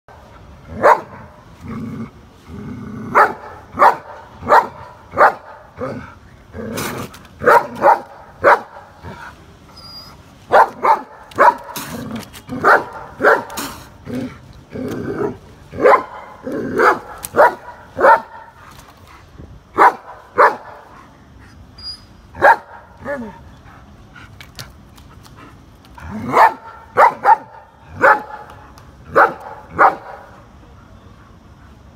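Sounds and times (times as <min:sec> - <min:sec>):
dog barking: 0:00.8 - 0:01.2, 0:03.1 - 0:05.6, 0:07.4 - 0:08.9, 0:10.5 - 0:11.8, 0:12.6 - 0:13.6, 0:15.8 - 0:18.5, 0:19.8 - 0:20.8, 0:22.4 - 0:23.3, 0:26.2 - 0:28.5, 0:29.1 - 0:30.3.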